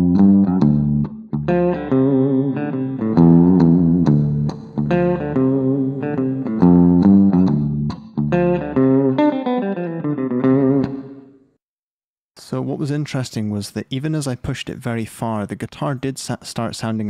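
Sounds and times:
electric guitar notes and chords: 0.0s - 11.5s.

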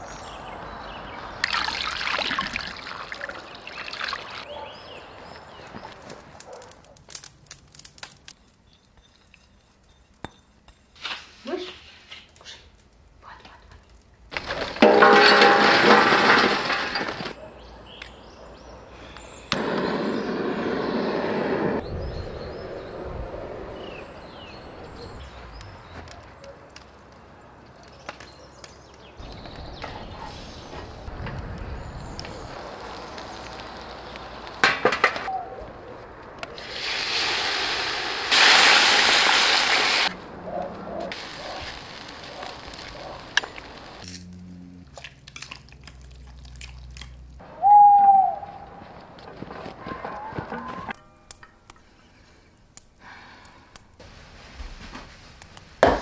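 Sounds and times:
liquid pouring and trickling: 1.4s - 4.4s.

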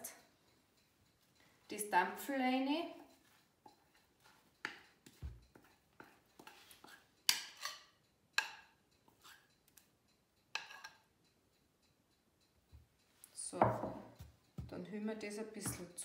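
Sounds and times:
spoon scraping ceramic bowl: 2.9s - 9.9s, 10.6s - 11.1s.

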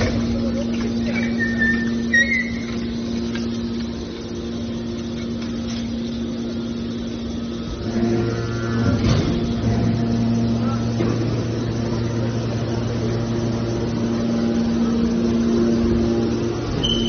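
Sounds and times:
deeper hydraulic tone: 0.0s - 17.0s
hydraulic pump humming: 0.0s - 17.0s.

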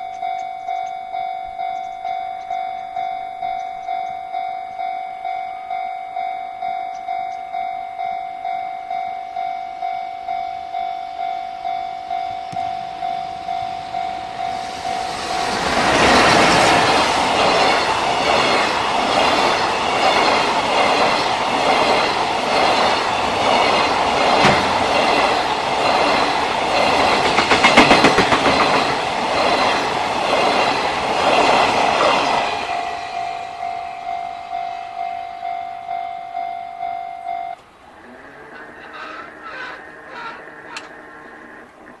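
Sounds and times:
level crossing warning bell: 0.0s - 28.8s, 32.2s - 37.6s
freight train rolling past: 0.0s - 42.0s
wheels clattering over rail joints: 13.6s - 32.3s, 37.9s - 42.0s.

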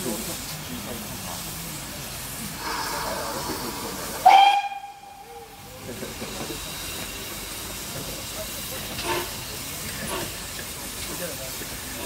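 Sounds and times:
steam hissing: 0.0s - 12.0s
steam whistle blast: 4.2s - 5.6s.

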